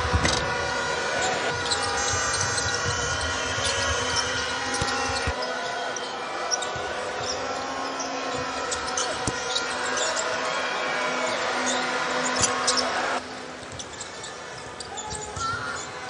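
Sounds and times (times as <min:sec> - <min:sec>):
arena crowd: 0:00.0 - 0:16.0
basketball bouncing on hardwood: 0:01.6 - 0:05.4.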